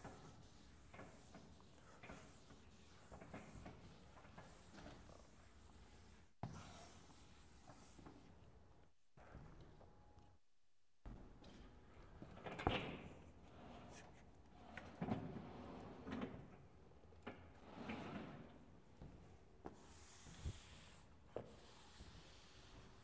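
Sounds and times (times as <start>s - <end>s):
chalk writing on board: 0.0s - 8.1s, 19.8s - 23.0s.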